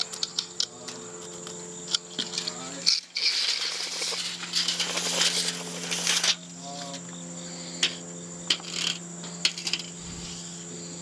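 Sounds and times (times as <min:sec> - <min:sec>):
high insect trill: 0:00.0 - 0:11.0
rustling clatter of handling: 0:02.1 - 0:07.0.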